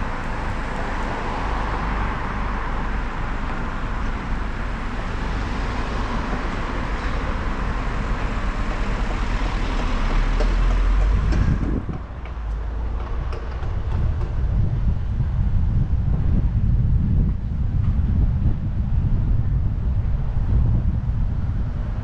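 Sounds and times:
traffic rumble: 0.0 - 22.0
wind on microphone: 0.0 - 22.0.

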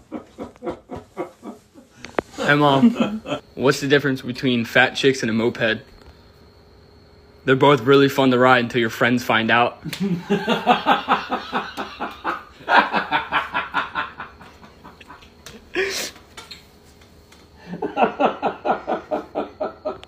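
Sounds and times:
hearty laughter: 0.0 - 3.4, 9.8 - 16.2, 17.6 - 20.0.

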